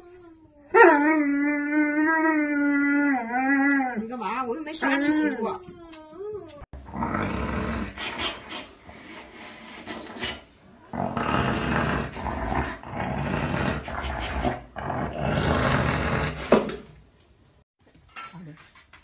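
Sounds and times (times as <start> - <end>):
dog making harsh throaty sounds: 6.8 - 16.7.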